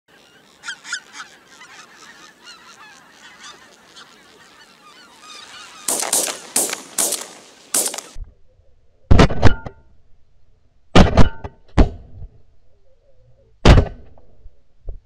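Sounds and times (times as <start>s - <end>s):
geese honking: 0.1s - 8.2s
shotgun shots: 5.8s - 8.2s.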